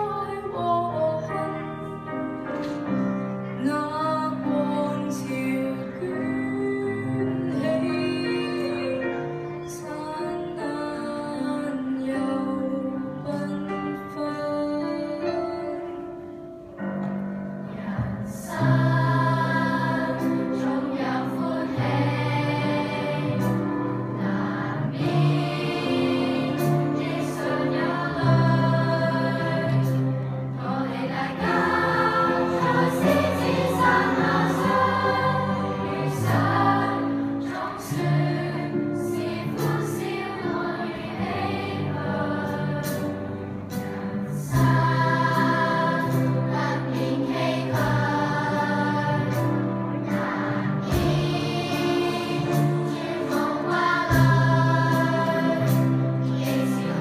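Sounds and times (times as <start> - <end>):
children's choir singing: 0.0 - 2.9, 3.6 - 15.7, 17.1 - 57.0.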